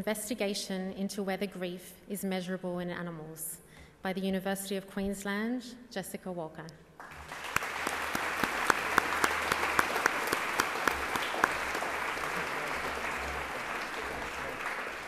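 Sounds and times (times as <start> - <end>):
audience applauding: 7.0 - 15.0
close hands clapping: 7.0 - 15.0.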